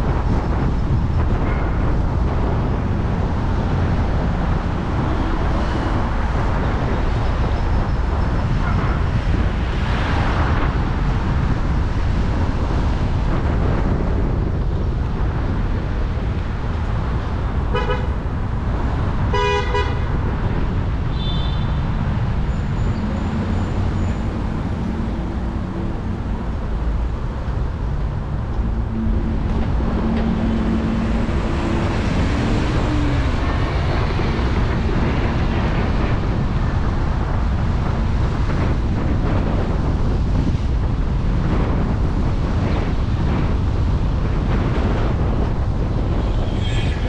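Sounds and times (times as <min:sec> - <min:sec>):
city traffic: 0:00.0 - 0:47.0
wind rumble on microphone: 0:00.0 - 0:47.0
car horn toot: 0:17.8 - 0:18.1, 0:19.3 - 0:20.0.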